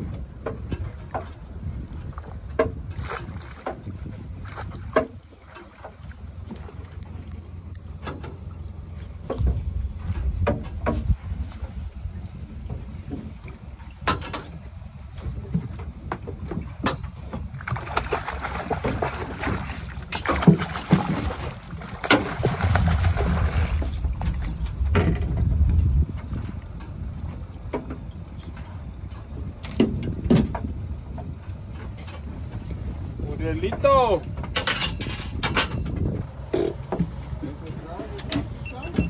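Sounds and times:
low rumble: 0.0 - 39.0
fish splashing and thrashing: 2.0 - 30.8.

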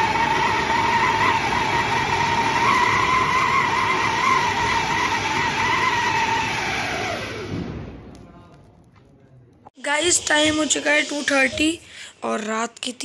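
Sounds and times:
shrill firework whistle: 0.0 - 7.8
firework hissing: 0.0 - 8.0, 9.9 - 12.0.

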